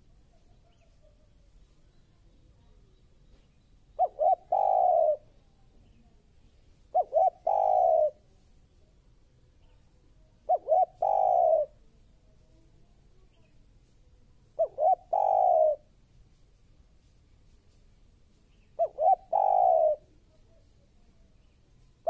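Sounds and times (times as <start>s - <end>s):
dove cooing: 4.0s - 5.4s, 6.9s - 8.2s, 10.4s - 11.8s, 14.6s - 15.9s, 18.8s - 20.2s.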